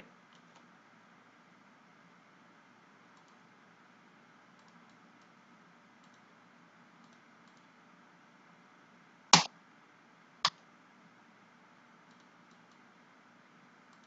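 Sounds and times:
computer mouse clicks: 3.1s - 3.4s, 4.5s - 5.4s, 6.0s - 6.3s, 7.0s - 7.7s, 12.1s - 12.8s.

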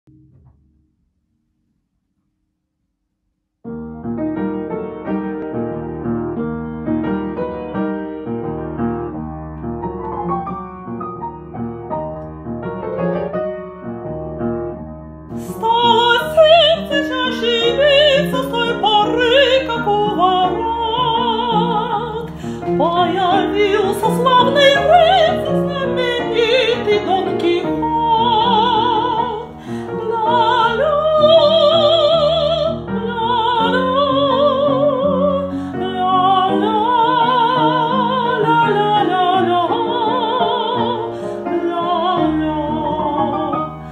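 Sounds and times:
upright piano accompaniment: 3.6s - 43.9s
woman singing operatically: 15.4s - 43.8s.

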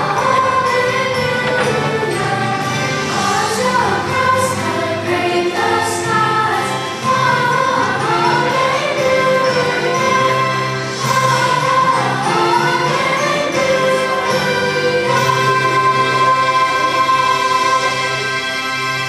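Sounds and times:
choir singing a hymn: 0.0s - 19.0s
instrumental accompaniment: 0.0s - 19.0s.

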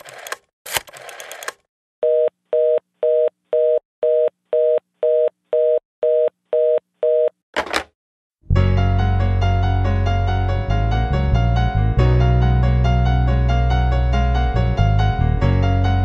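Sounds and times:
rotary dial whirring and clicking: 0.0s - 1.7s.

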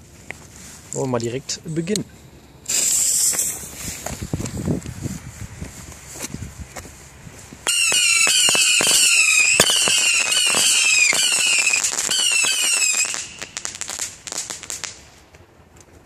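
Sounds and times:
crackling pops: 1.8s - 4.6s, 7.7s - 16.0s
firework rockets whistling: 2.1s - 4.5s, 7.6s - 15.2s.

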